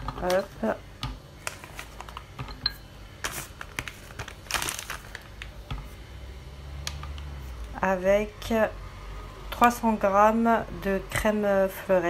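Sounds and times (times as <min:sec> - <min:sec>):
packaging rustling: 0:01.4 - 0:02.3, 0:03.2 - 0:05.6.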